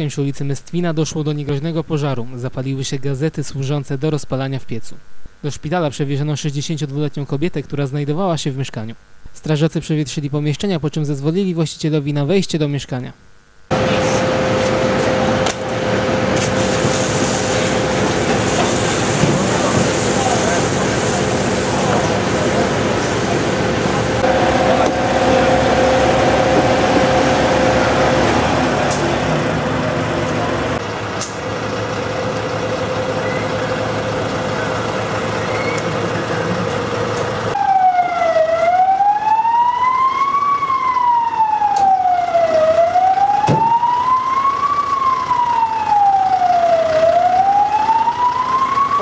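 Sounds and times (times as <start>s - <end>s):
emergency siren wailing: 13.7s - 36.7s, 37.4s - 49.0s
engine humming: 13.7s - 38.9s.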